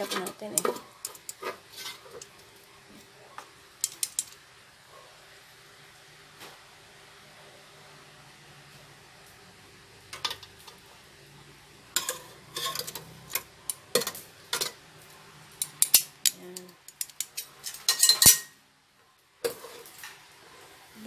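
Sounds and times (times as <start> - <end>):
metal tongs clacking in a basket: 0.0 - 2.4, 3.8 - 4.4, 12.0 - 14.8, 15.5 - 18.6.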